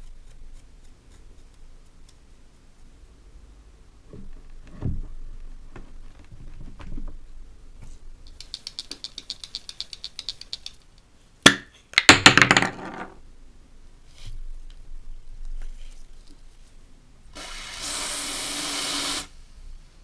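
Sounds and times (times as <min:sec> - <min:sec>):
spray can ball rattling: 0:08.3 - 0:10.9.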